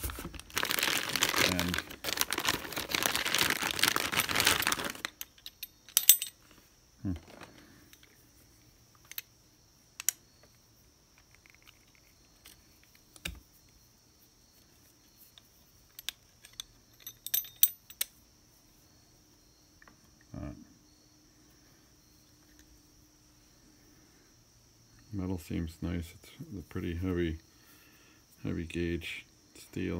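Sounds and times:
steel clamp parts clicking: 0:05.1 - 0:06.4, 0:15.9 - 0:18.2.

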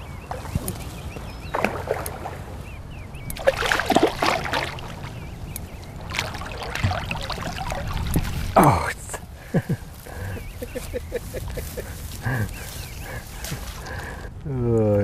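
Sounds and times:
fish splashing in shallow water: 0:00.3 - 0:08.7.

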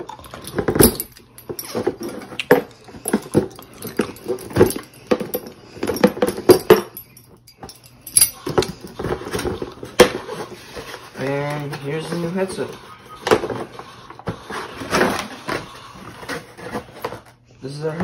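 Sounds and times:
packaging rustling and scraping: 0:08.3 - 0:17.4.

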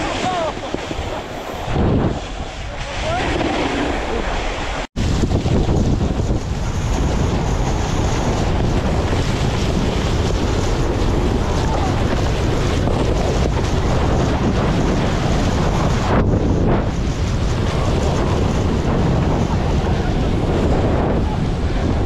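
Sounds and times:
snowboard sliding through snow: 0:00.0 - 0:16.8
wind rumble on microphone: 0:00.0 - 0:22.0.

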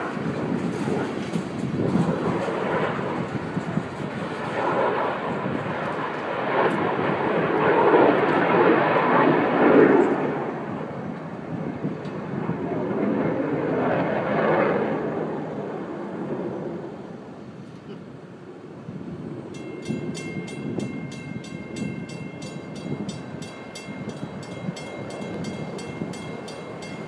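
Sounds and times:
freight train wheels rumbling on track: 0:00.0 - 0:07.0, 0:19.5 - 0:27.0.

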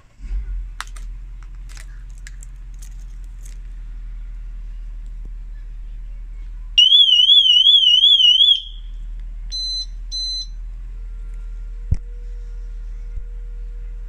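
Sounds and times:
warbling alarm siren: 0:06.8 - 0:08.9
short beeps: 0:09.5 - 0:10.6.

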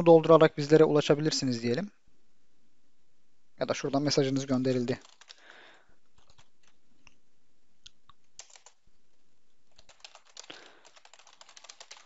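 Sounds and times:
typing on computer keyboard: 0:05.0 - 0:05.5, 0:06.2 - 0:06.8, 0:08.4 - 0:08.8, 0:09.7 - 0:12.0.

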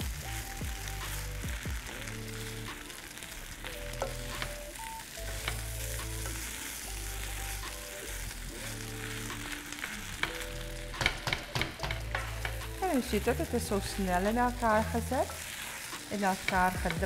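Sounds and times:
background music low notes: 0:00.0 - 0:17.0
rice sizzling in a wok: 0:00.0 - 0:17.0
spatula scraping and tapping pan: 0:03.9 - 0:04.6, 0:05.2 - 0:06.5, 0:08.0 - 0:13.3, 0:15.4 - 0:17.0.

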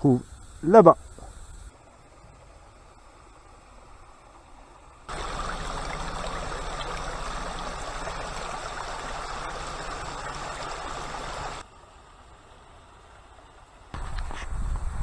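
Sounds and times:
water running over stones: 0:02.5 - 0:11.6.

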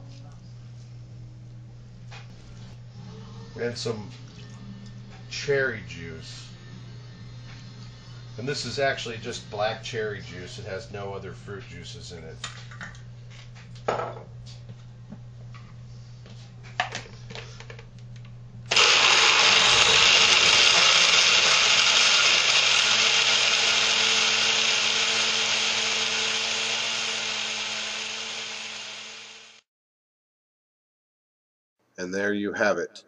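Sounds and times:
blender crushing ice: 0:18.7 - 0:29.6.

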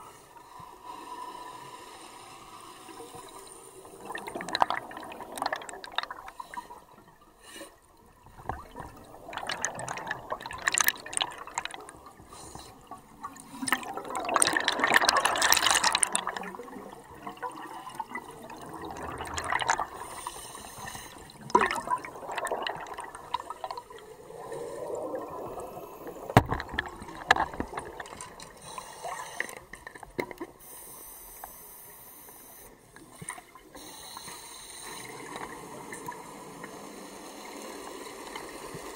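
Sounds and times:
underwater bubbling: 0:00.0 - 0:30.8.

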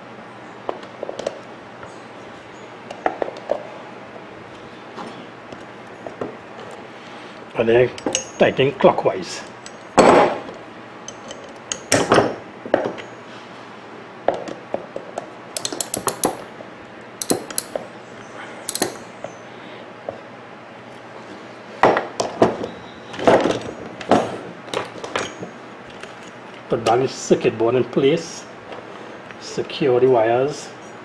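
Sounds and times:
metal tools clinking: 0:07.8 - 0:10.3, 0:11.0 - 0:12.0, 0:15.6 - 0:16.5, 0:17.2 - 0:17.8, 0:18.6 - 0:19.1, 0:24.7 - 0:26.4.

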